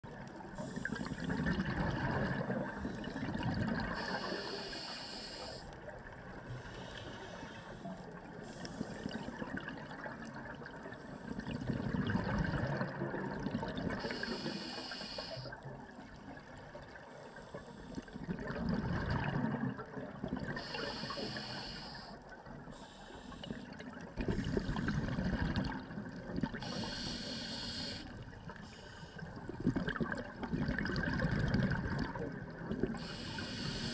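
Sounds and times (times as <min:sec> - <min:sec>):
exhaled bubbles gurgling: 0:00.0 - 0:33.9
regulator inhale hiss: 0:00.6 - 0:01.3, 0:03.9 - 0:05.8, 0:06.5 - 0:09.3, 0:14.0 - 0:15.6, 0:17.3 - 0:18.2, 0:20.6 - 0:25.1, 0:26.6 - 0:29.4, 0:32.9 - 0:33.9.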